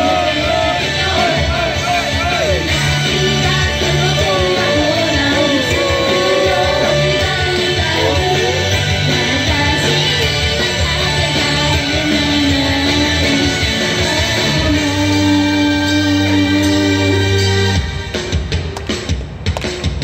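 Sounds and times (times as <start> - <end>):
loud pop-rock music: 0.0 - 20.0
women singing into microphones: 3.1 - 17.1.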